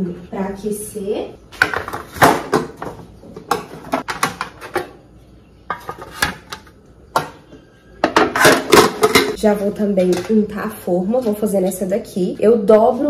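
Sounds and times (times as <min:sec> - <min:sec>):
metal baking pans clanking: 0:01.6 - 0:05.0, 0:05.7 - 0:07.4, 0:08.0 - 0:10.6.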